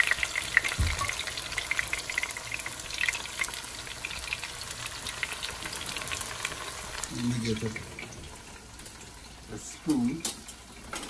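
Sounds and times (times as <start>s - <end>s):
vegetables sizzling in hot oil: 0.0s - 11.0s
low thump: 0.8s - 1.1s.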